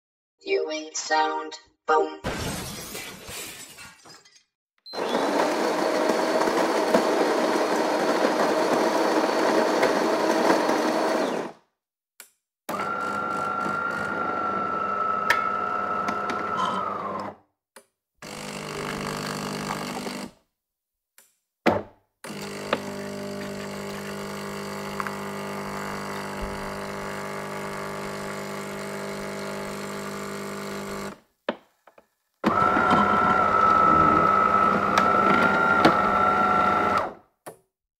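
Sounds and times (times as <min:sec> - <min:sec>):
espresso machine running: 0:05.0 - 0:11.5, 0:12.7 - 0:17.2, 0:18.3 - 0:20.2, 0:22.3 - 0:31.2, 0:32.4 - 0:37.1.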